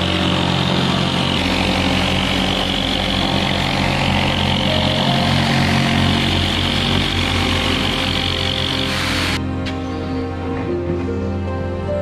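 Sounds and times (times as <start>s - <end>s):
jigsaw cutting plywood: 0.0s - 9.4s.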